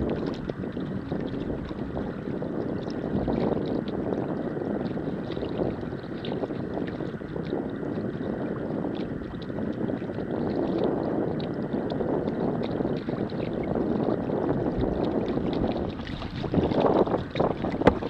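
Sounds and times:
wind buffeting microphone: 0.0 - 18.0
water splashing and dripping: 12.6 - 18.0.

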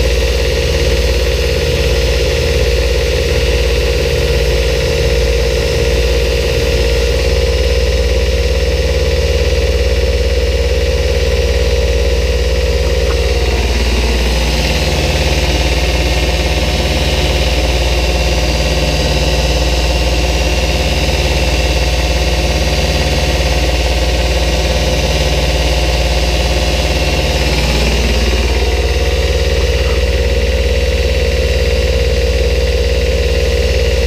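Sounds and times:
machinery humming: 0.0 - 34.0
higher machine tone: 12.4 - 32.3.

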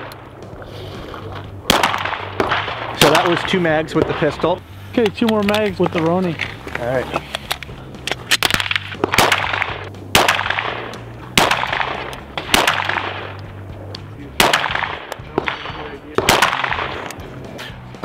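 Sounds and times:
pistol gunshots with ringing echo: 1.6 - 4.5, 8.2 - 13.4, 14.4 - 17.2.

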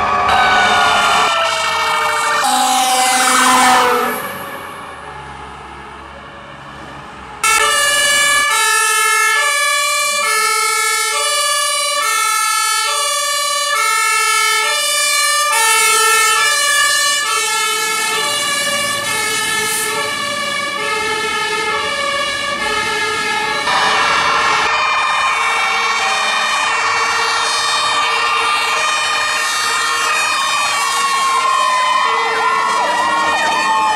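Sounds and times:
two-tone air horn: 2.4 - 4.4.

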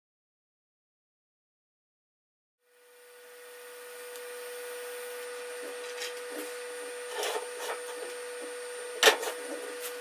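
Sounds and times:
machine hum: 2.6 - 10.0.

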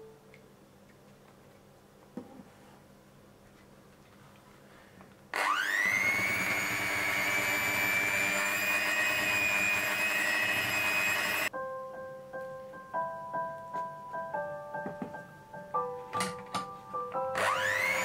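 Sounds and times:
electric hand mixer whining: 5.4 - 11.5, 17.3 - 18.0.

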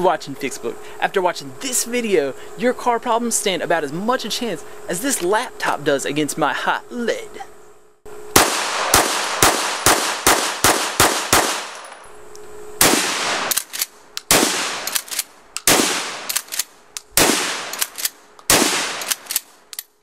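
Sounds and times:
shotgun firing: 8.3 - 11.8, 12.8 - 13.7, 14.3 - 16.6, 17.2 - 19.4
rapid handgun fire: 8.3 - 11.9, 12.8 - 19.5
shotgun pump clack: 13.5 - 19.9.

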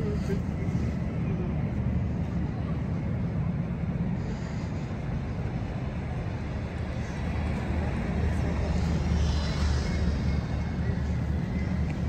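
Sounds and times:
traffic engine rumble: 0.0 - 12.0.

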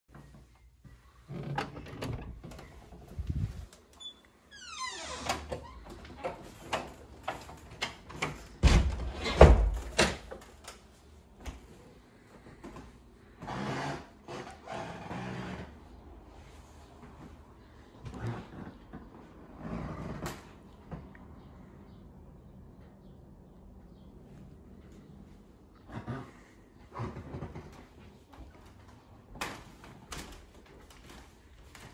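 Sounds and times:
door creaking: 1.2 - 10.4.

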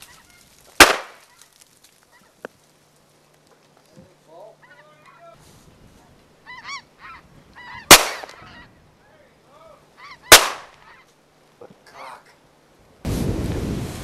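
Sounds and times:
geese honking: 0.0 - 0.6, 4.3 - 5.4, 6.4 - 9.2, 9.9 - 11.2
shotgun shots: 0.8 - 1.2, 7.9 - 8.4, 10.3 - 10.8.

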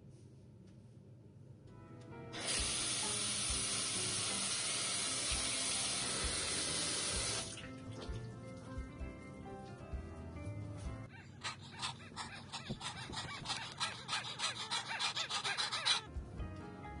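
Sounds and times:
music: 1.6 - 17.0
tap water running into sink: 2.4 - 8.2.

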